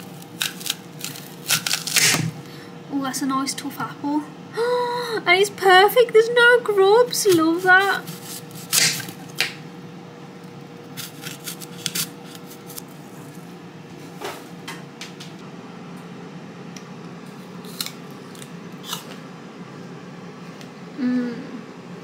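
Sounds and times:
crunchy bite into apple: 0:00.0 - 0:02.5, 0:08.0 - 0:09.6, 0:10.9 - 0:13.4, 0:17.3 - 0:19.2
knife cutting apple: 0:00.2 - 0:02.4, 0:07.2 - 0:09.6, 0:11.0 - 0:13.4, 0:17.6 - 0:19.2.

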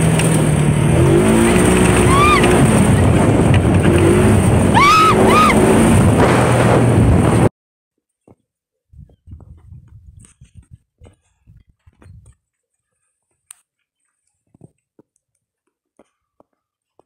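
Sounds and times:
utility vehicle engine running: 0:00.0 - 0:07.5
riders yelling: 0:02.0 - 0:02.6, 0:04.7 - 0:05.7.

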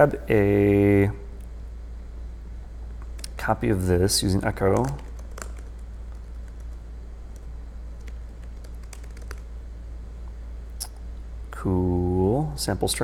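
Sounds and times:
low background hum: 0:00.0 - 0:13.0
keyboard keystrokes: 0:04.7 - 0:09.5.

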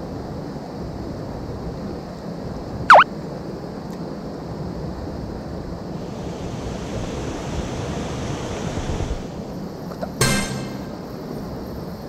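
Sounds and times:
mountain stream rushing: 0:05.9 - 0:09.5.

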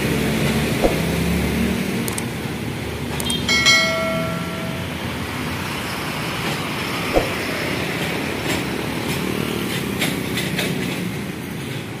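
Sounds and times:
road traffic noise: 0:00.0 - 0:12.0
sharp thump: 0:00.8 - 0:01.4, 0:03.9 - 0:05.1, 0:07.1 - 0:07.8.

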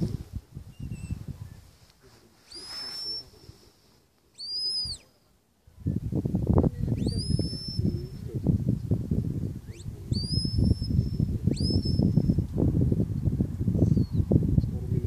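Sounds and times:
low rumbling on microphone: 0:00.0 - 0:01.9, 0:05.6 - 0:15.0.

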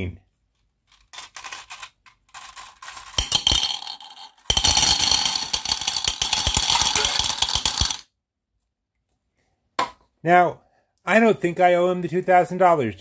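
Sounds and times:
metal balls rattling on glass: 0:00.9 - 0:08.1.

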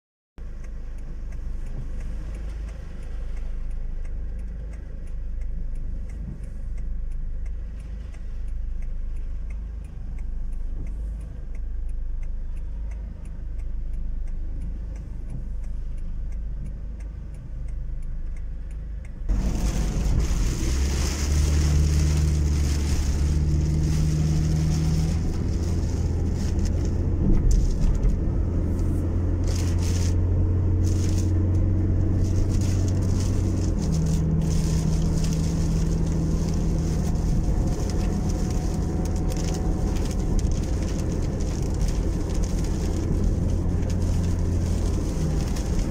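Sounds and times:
car engine idling: 0:00.4 - 0:45.9
faint regular ticking: 0:00.4 - 0:45.9
tyres on wet road: 0:00.4 - 0:45.9.

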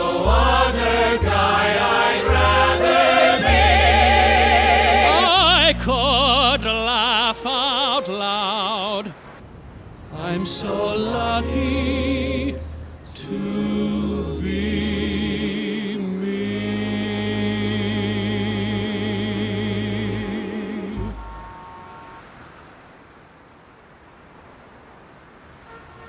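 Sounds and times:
orchestra playing: 0:00.0 - 0:08.3, 0:11.1 - 0:13.8
faint street noise: 0:00.0 - 0:26.0
man singing: 0:05.1 - 0:09.2, 0:10.1 - 0:12.6.

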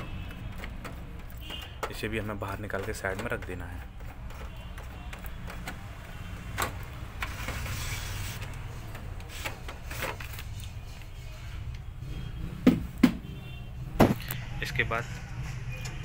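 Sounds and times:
plastic scraping: 0:00.0 - 0:11.2
sharp knocks: 0:12.6 - 0:13.3.

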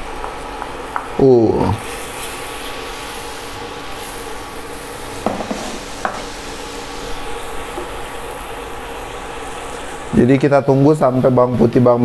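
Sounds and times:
paste sizzling in hot oil: 0:01.8 - 0:10.8.

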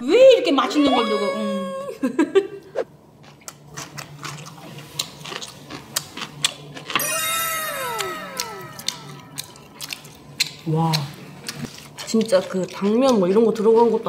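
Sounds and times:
falling whistle-like tones: 0:07.0 - 0:09.6.

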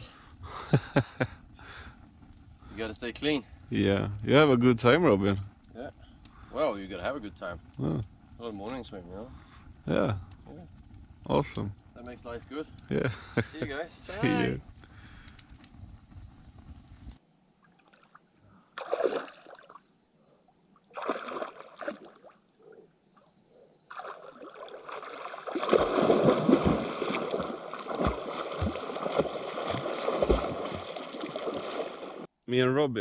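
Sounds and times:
lake water splashing: 0:17.6 - 0:19.9, 0:20.8 - 0:22.8, 0:23.9 - 0:32.3
water sloshing: 0:18.8 - 0:19.9, 0:20.8 - 0:22.8, 0:23.9 - 0:32.3.

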